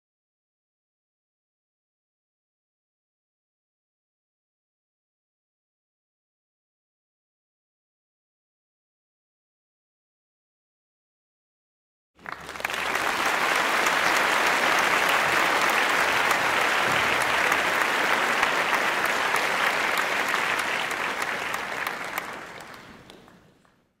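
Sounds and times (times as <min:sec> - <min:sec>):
crowd applause: 0:12.2 - 0:24.0.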